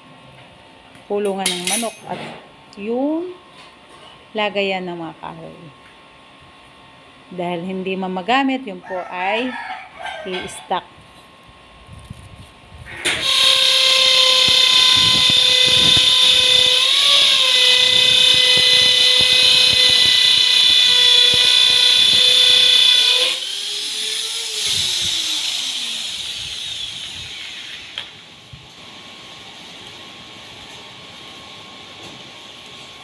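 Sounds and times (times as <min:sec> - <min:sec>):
power tool motor whining: 0:12.9 - 0:28.2
motor spinning down: 0:12.9 - 0:28.3.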